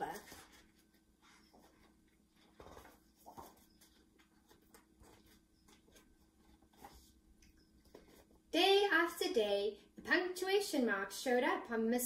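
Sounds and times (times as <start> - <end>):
book pages rustling: 0.0 - 8.5.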